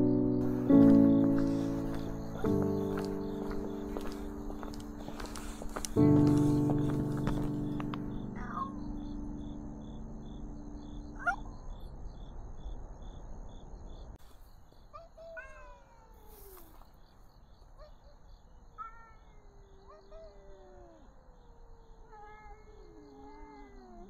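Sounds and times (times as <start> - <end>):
crickets chirping: 0.0 - 24.0
cats yowling: 15.0 - 16.8, 18.8 - 24.0
cats growling: 18.8 - 24.0.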